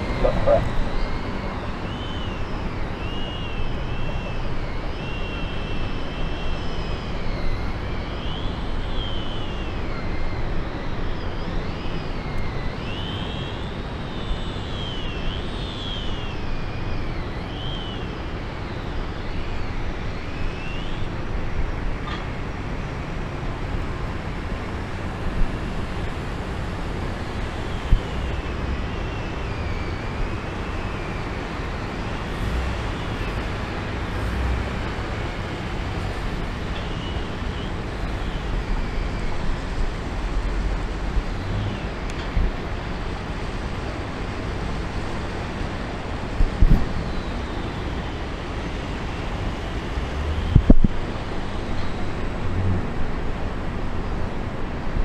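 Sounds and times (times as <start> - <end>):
high wavering chirps: 0.0 - 21.2
boat engine low rumble: 0.0 - 55.0.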